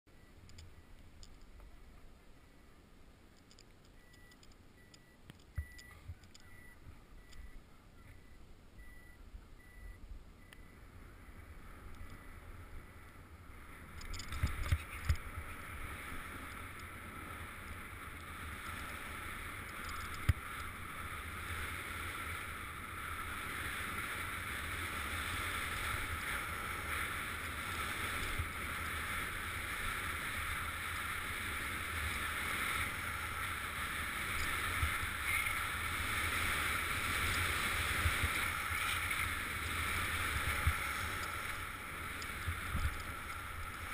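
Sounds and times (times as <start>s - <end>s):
wind rumbling on microphone: 10.8s - 43.9s.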